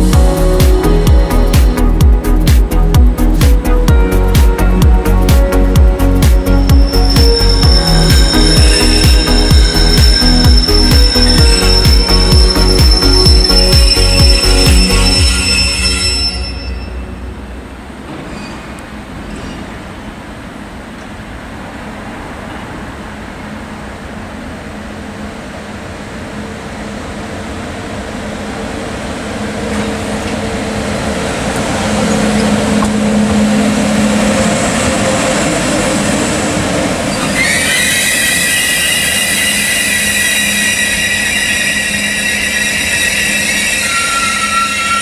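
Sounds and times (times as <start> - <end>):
electric locomotive running: 4.0 - 19.5, 22.9 - 45.0
high steady squeal: 6.5 - 18.7, 32.0 - 45.0
lower squeal tone: 6.5 - 19.6, 31.8 - 45.0.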